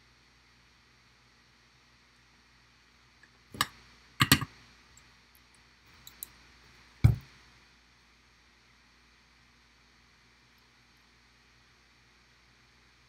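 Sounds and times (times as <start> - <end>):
heavy thump on workbench: 7.0 - 7.3.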